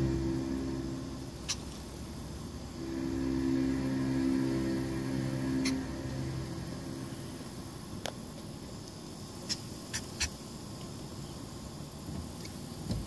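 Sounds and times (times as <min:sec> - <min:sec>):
faint low rumble: 0:00.0 - 0:08.9.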